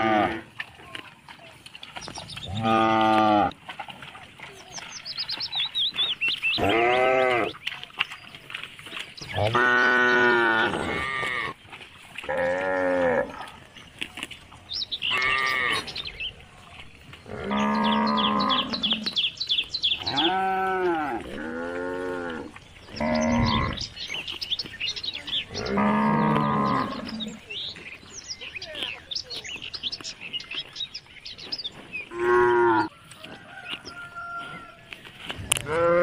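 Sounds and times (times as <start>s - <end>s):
calves mooing: 0.0s - 0.5s, 2.4s - 3.6s, 6.5s - 7.6s, 9.2s - 11.6s, 12.2s - 13.5s, 15.0s - 16.1s, 17.2s - 19.2s, 19.9s - 23.9s, 25.3s - 27.4s, 32.1s - 32.9s, 33.9s - 36.0s.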